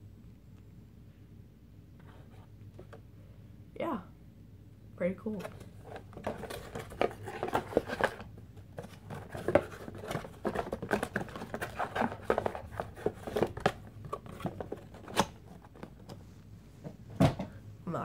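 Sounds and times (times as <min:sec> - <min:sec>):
cardboard box scraping and rustling: 0:05.4 - 0:15.4.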